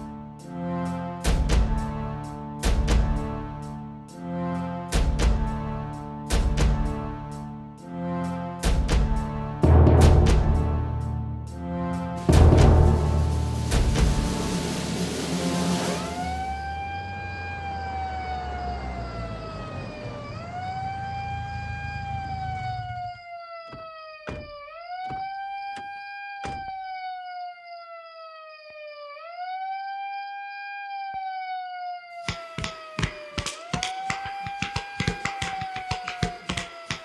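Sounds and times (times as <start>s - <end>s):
low rumble: 12.2s - 16.9s
siren wailing: 12.3s - 37.0s.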